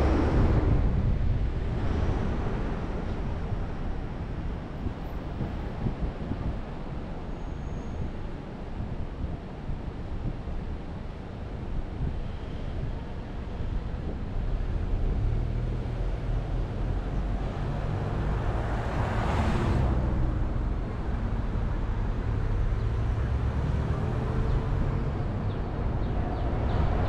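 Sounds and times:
passing vehicle whoosh: 0:00.0 - 0:03.7, 0:15.3 - 0:27.0
low road rumble: 0:00.0 - 0:27.0.

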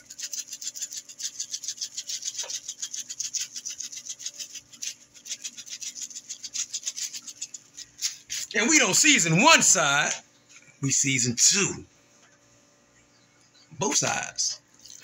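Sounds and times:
dried herbs rattling in shaker jar: 0:00.0 - 0:08.6.

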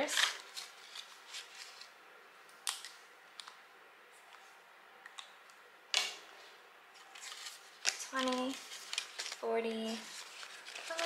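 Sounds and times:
paper rustling: 0:00.0 - 0:02.0, 0:07.0 - 0:11.0.

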